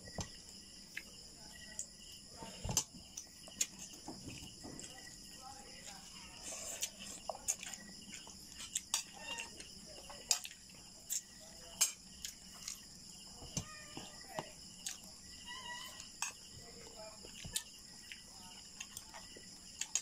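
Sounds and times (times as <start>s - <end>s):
insects chirring: 0.0s - 20.0s
person chewing: 6.4s - 9.7s, 12.2s - 12.8s, 17.3s - 20.0s.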